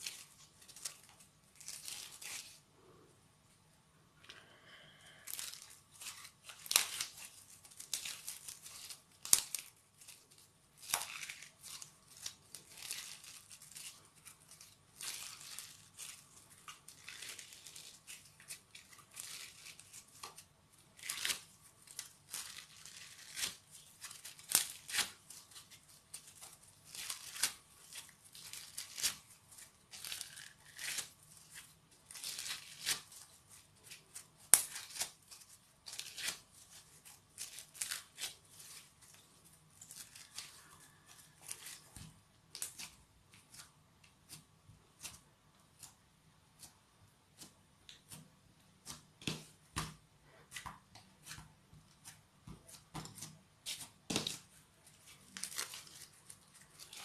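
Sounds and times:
crunchy slime crackling and popping: 0:05.0 - 0:46.7.

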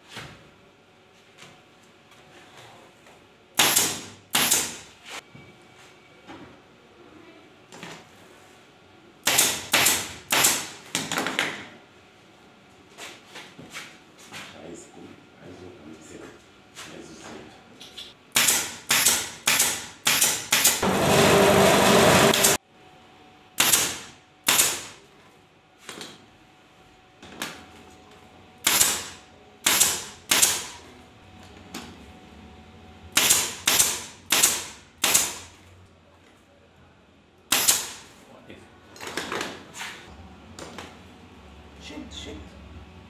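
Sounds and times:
staple gun firing: 0:18.4 - 0:20.8, 0:23.6 - 0:24.9, 0:33.2 - 0:35.4, 0:37.5 - 0:38.0.

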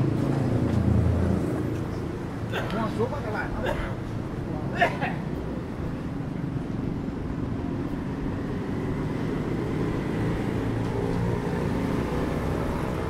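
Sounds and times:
passing street traffic: 0:00.0 - 0:13.0.

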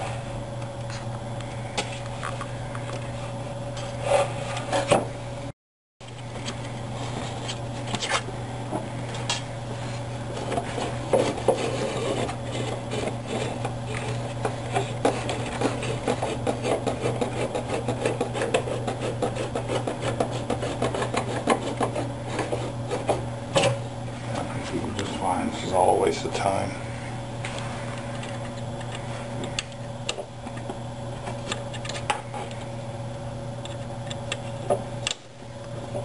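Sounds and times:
gritty rubbing of linear bearings: 0:10.3 - 0:23.2.

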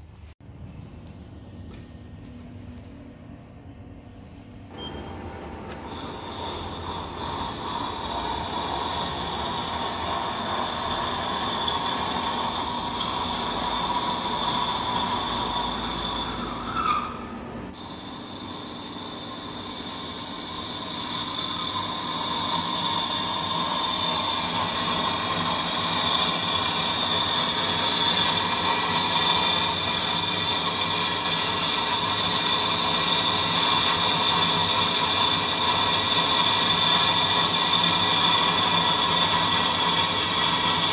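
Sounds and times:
steady high-pitched tone: 0:03.4 - 0:17.0, 0:17.7 - 0:34.4
lathe cutting metal: 0:04.7 - 0:17.2, 0:17.8 - 0:40.9.

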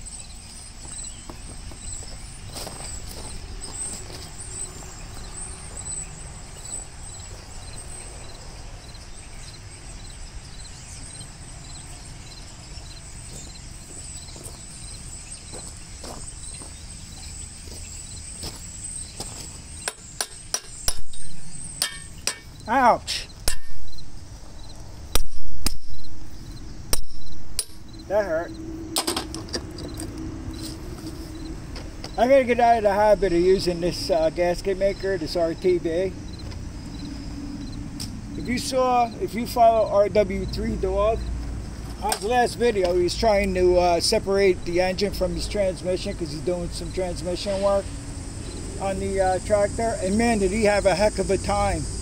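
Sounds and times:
insects chirping: 0:00.0 - 0:52.0
hammer striking metal: 0:19.9 - 0:22.5, 0:23.5 - 0:23.8.

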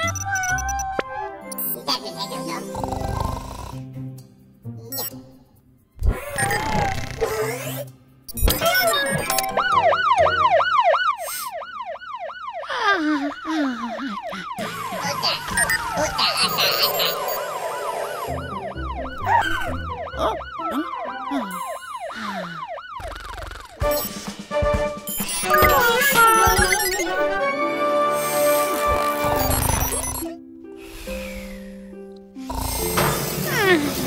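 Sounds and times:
cartoon alarm siren yelping: 0:00.0 - 0:01.4, 0:08.5 - 0:23.8, 0:25.2 - 0:27.3
cartoon sound effects: 0:00.0 - 0:02.6, 0:06.0 - 0:10.4, 0:12.7 - 0:23.9, 0:25.2 - 0:27.4.

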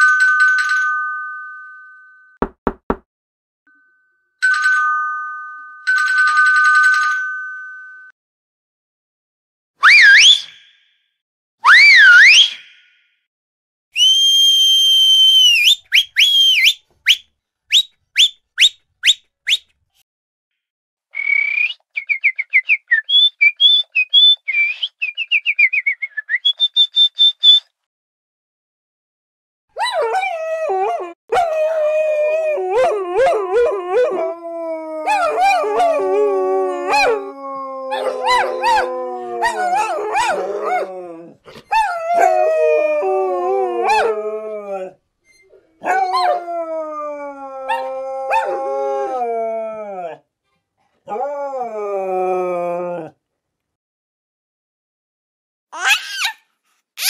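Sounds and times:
person whistling: 0:14.0 - 0:19.7, 0:21.2 - 0:27.7
dogs howling: 0:29.8 - 0:45.0, 0:45.8 - 0:50.2, 0:51.1 - 0:53.2.

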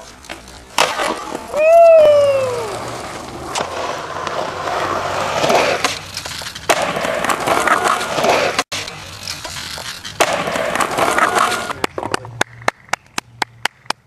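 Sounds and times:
skateboard clacks: 0:00.0 - 0:14.0
skateboard wheels rolling on concrete: 0:00.0 - 0:14.0.

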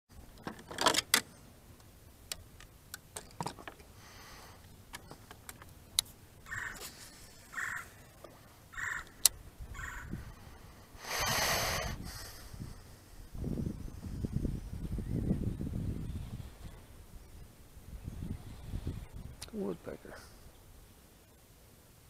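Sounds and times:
rustling: 0:04.9 - 0:09.2
woodpecker calling: 0:06.4 - 0:10.2.

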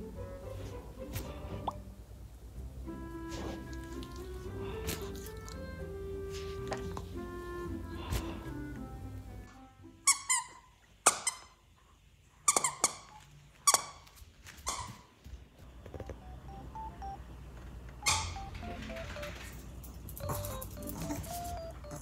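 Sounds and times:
rubber squeaky toy squeaking: 0:10.0 - 0:11.6, 0:12.5 - 0:15.1.

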